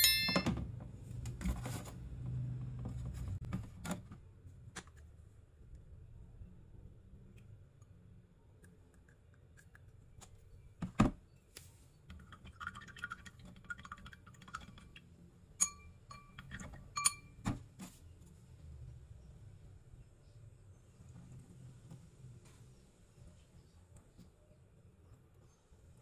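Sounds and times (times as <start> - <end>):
skewer clinking in glass: 0.0 - 0.6, 15.6 - 17.4
ringing taps on glass: 0.0 - 0.7, 15.6 - 17.4.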